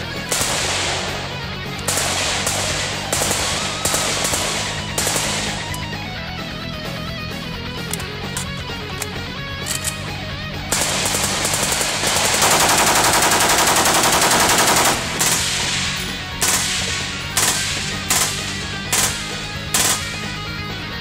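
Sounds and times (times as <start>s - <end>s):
rifle full-auto burst: 0.0s - 6.2s, 7.8s - 20.6s.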